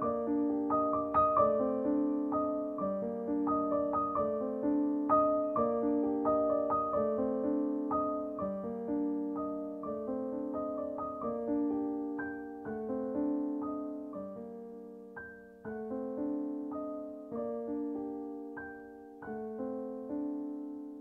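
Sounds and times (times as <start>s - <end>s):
soft piano music: 0.0s - 21.0s.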